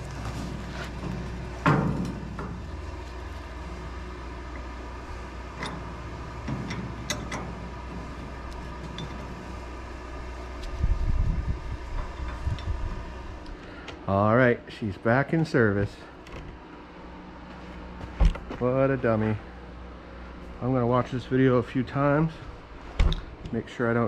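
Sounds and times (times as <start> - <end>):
diesel engine idling: 0.0 - 10.7.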